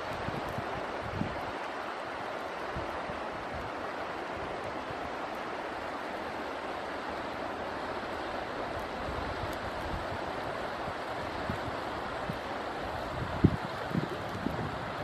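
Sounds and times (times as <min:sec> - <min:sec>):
wind on microphone: 0:00.0 - 0:01.6, 0:08.8 - 0:15.0
water rushing hiss: 0:00.0 - 0:15.0.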